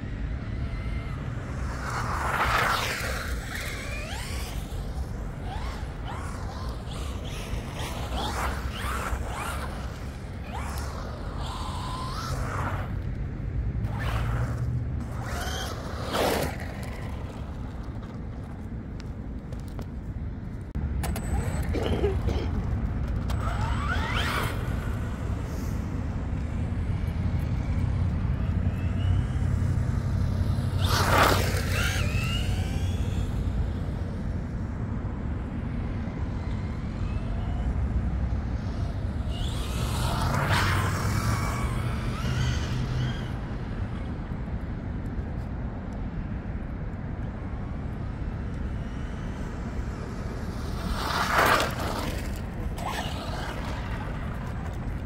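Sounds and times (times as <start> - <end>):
rc truck motor whining: 0.0 - 13.2, 13.8 - 18.6, 21.0 - 34.5, 35.4 - 44.4, 48.4 - 55.0
tyres rumbling on ground: 0.4 - 34.1.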